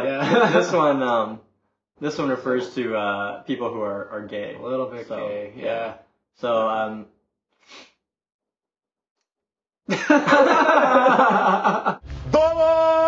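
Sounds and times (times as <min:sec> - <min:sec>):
men laughing loudly: 0:00.0 - 0:00.8, 0:09.9 - 0:12.6
man shouting drawn-out word: 0:12.2 - 0:13.0.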